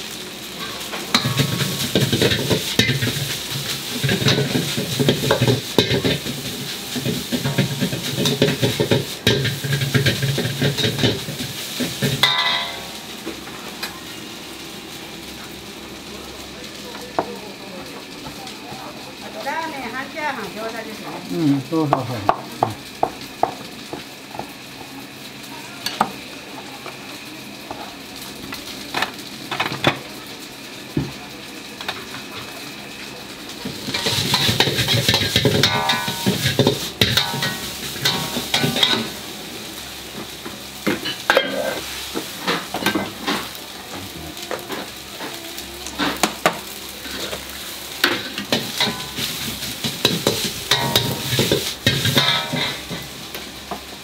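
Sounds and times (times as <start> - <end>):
kitchen hiss: 0.0 - 54.0
rice sizzling in wok: 0.0 - 54.0
ladle knocking and scraping wok: 0.6 - 12.9, 33.6 - 39.2, 48.0 - 53.8.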